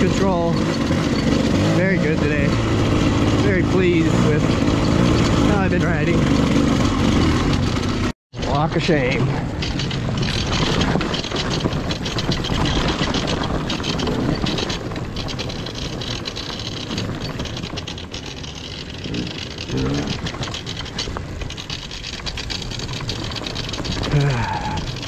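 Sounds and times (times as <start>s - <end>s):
dirt bike engine running: 0.0s - 25.0s
wind noise on microphone: 9.4s - 17.8s.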